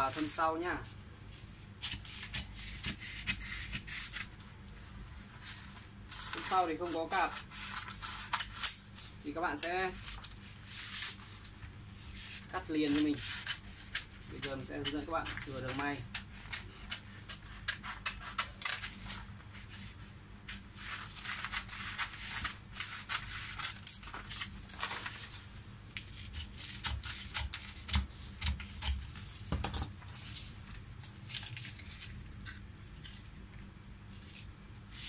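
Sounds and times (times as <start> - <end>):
paper rustling and sliding: 4.8 - 9.2, 9.9 - 13.5, 18.6 - 25.3, 29.1 - 32.2
scissors snipping paper: 6.1 - 10.3, 12.8 - 19.2.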